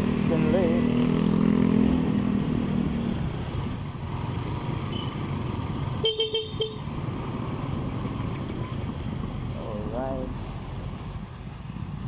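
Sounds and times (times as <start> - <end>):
motorcycle engine and road noise: 0.0 - 12.0
vehicle horn toots: 6.0 - 6.8.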